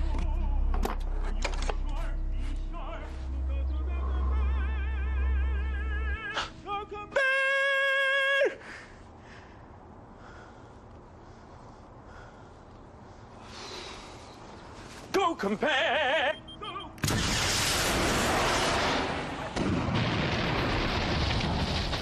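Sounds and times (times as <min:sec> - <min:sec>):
man singing operatically: 0:00.0 - 0:08.6, 0:15.2 - 0:17.0
loud explosion: 0:17.0 - 0:22.0.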